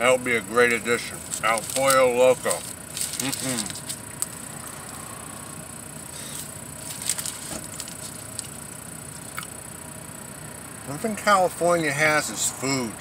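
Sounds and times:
paper wrapper crinkling: 1.0s - 4.5s, 6.2s - 9.4s.

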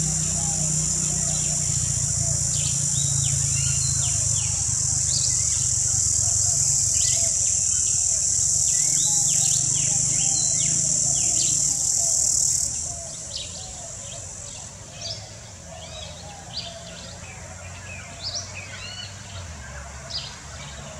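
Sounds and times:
high-pitched insect drone: 0.0s - 15.3s.

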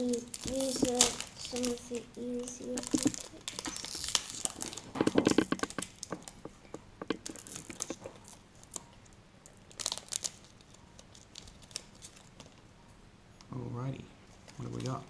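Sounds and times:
foil packets tearing and crinkling: 0.0s - 8.9s, 9.5s - 12.6s.

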